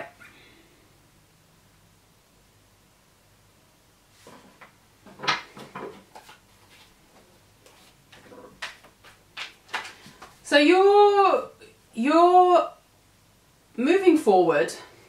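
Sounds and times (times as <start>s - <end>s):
cards shuffled on wooden table: 5.3s - 6.9s, 7.6s - 10.4s.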